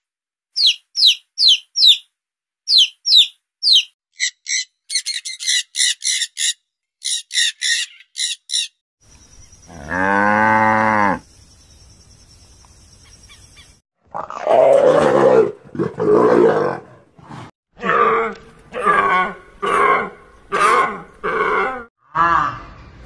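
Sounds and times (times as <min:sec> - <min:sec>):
macaw squawking: 0:00.6 - 0:02.0, 0:02.7 - 0:08.8
cow mooing: 0:09.7 - 0:11.2.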